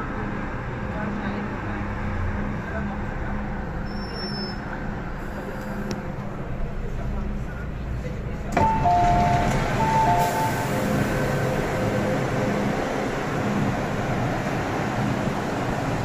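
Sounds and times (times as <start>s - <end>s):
rumble of stopped train: 0.0s - 16.0s
train doors opening clunk: 8.5s - 11.1s.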